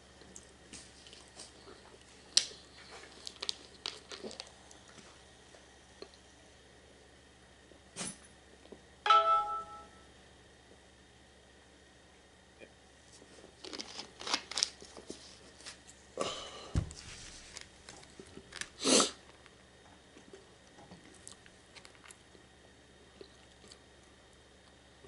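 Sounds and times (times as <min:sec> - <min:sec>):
chewing food: 0:00.2 - 0:05.0, 0:17.9 - 0:22.4, 0:23.0 - 0:24.2.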